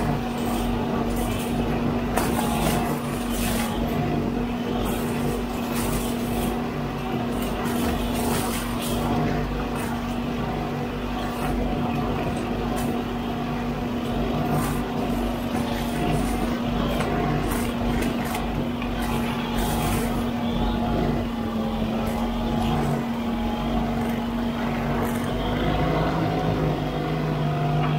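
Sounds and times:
backhoe loader running: 0.0s - 27.9s
brush cutter hum: 0.0s - 27.9s.

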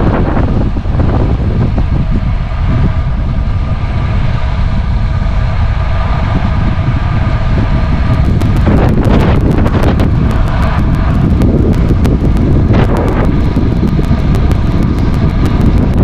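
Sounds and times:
road noise: 0.0s - 16.0s
steady hum: 0.0s - 16.0s
wind rushing over microphone: 0.0s - 16.0s
sharp crackles: 8.1s - 16.0s.

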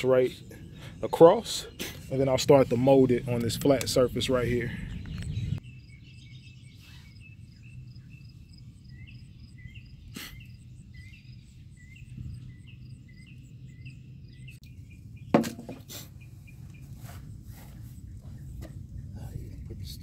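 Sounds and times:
small bird chirping: 4.7s - 20.0s
sharp knock: 15.4s - 15.8s.

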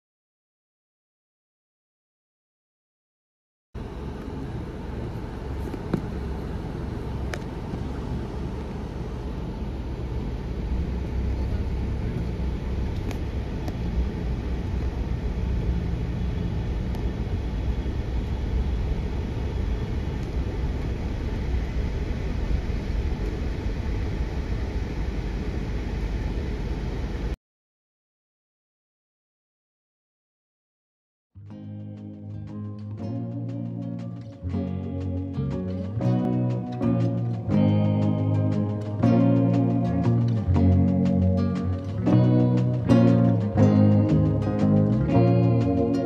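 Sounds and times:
moving vehicle rumble: 3.8s - 27.4s, 31.6s - 46.0s.

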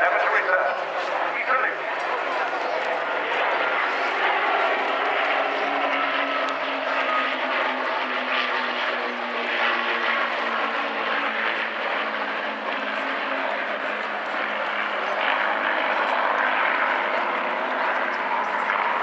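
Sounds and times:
propeller aircraft engine drone: 0.0s - 19.0s.

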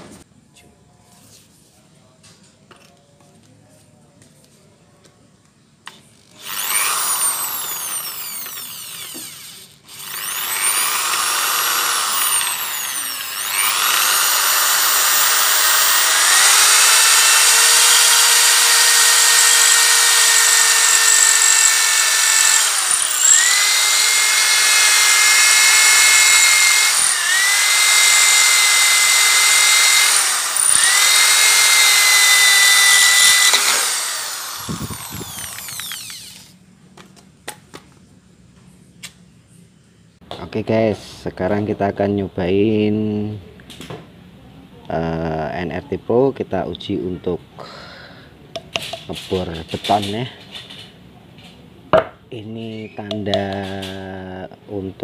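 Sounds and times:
electric drill boring through steel: 6.4s - 36.5s.

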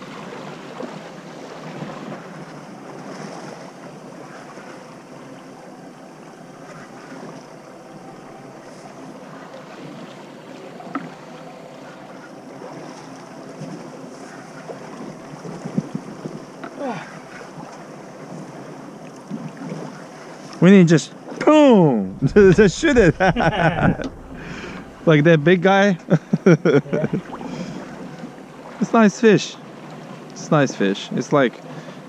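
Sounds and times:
water sloshing against boat hull: 0.0s - 32.0s
wind buffeting microphone: 21.9s - 28.4s.

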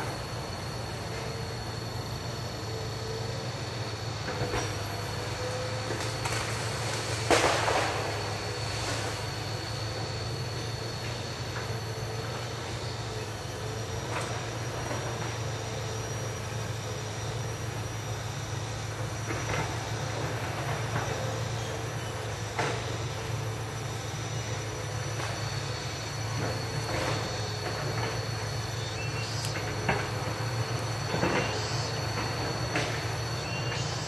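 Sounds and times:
excavator engine droning: 0.0s - 34.0s
sharp knocks and squeals: 26.5s - 34.0s.

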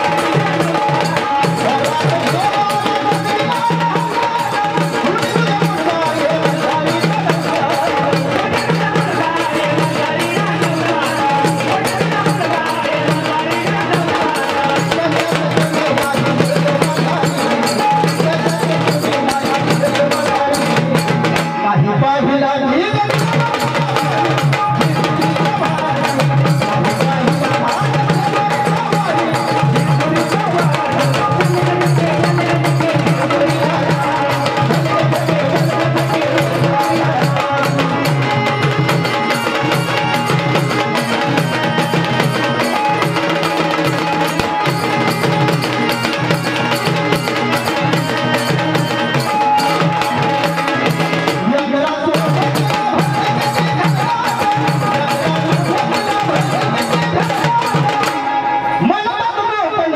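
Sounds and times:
drums playing driving beat: 0.0s - 21.6s, 22.9s - 58.4s
held melodic tones: 23.1s - 58.9s.

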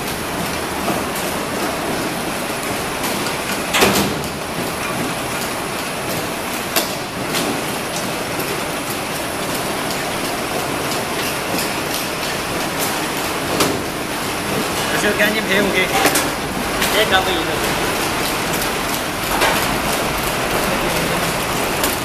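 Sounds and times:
machine mechanical clatter: 0.0s - 22.0s.

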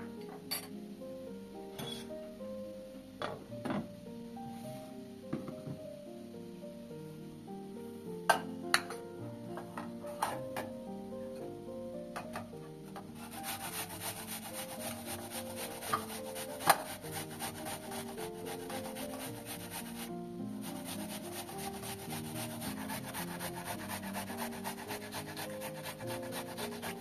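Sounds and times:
background music: 0.0s - 27.0s
onion grating on box grater: 13.2s - 27.0s.

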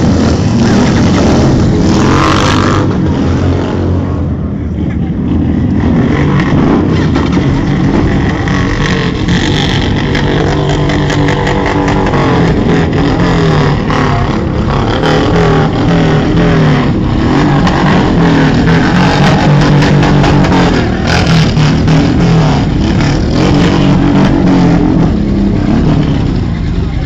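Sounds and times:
motorcycle engines revving: 0.0s - 27.0s.

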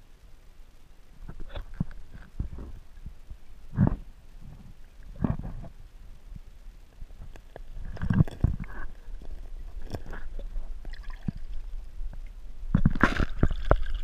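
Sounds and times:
muffled underwater gurgling: 1.2s - 5.8s
water splashing: 7.8s - 14.0s.

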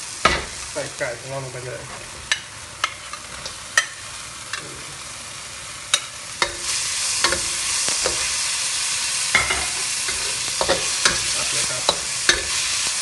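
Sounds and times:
chicken sizzling in hot oil: 0.0s - 13.0s
metal spatula scraping a wok: 9.3s - 13.0s.

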